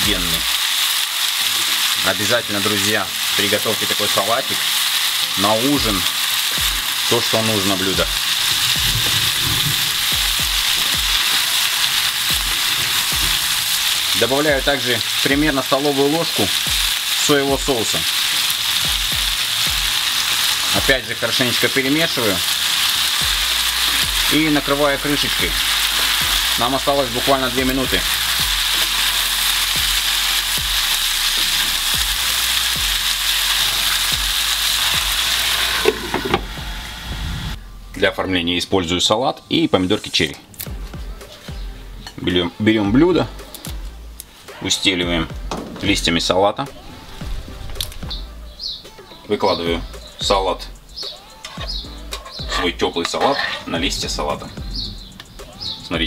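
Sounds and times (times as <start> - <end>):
vegetables sizzling in a frying pan: 0.0 - 37.6
spatula knocking and scraping pan: 51.5 - 54.0.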